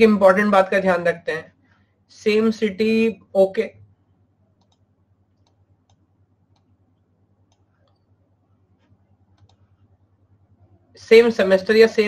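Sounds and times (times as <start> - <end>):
low steady hum: 0.0 - 12.0
faint irregular clicks: 4.5 - 10.0.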